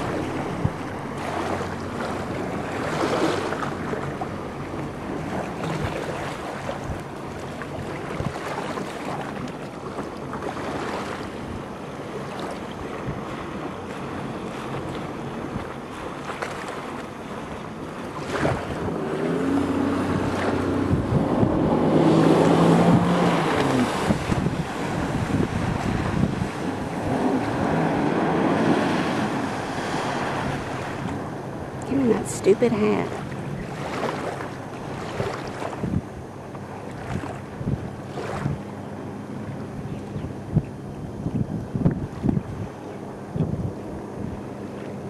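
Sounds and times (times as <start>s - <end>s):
watercraft engine droning: 0.0s - 45.0s
wind buffeting microphone: 0.0s - 45.0s.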